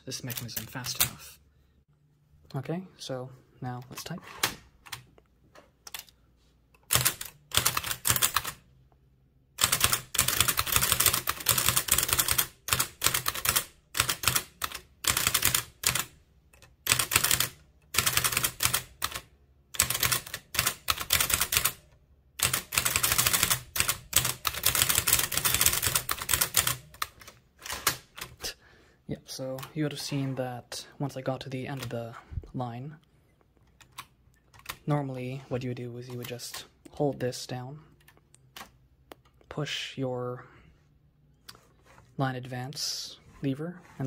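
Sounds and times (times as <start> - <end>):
typewriter keystrokes clacking: 22.4 - 28.4.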